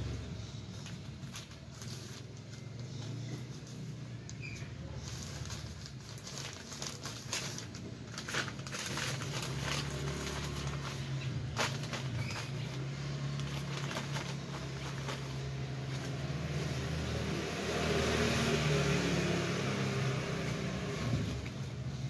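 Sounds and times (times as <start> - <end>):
plastic bag rustling: 0.4 - 17.4.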